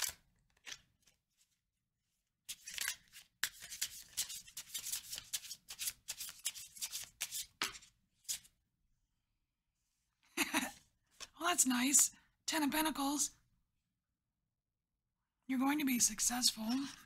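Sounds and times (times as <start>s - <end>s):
cards shuffling: 0.0s - 1.6s, 2.5s - 8.5s.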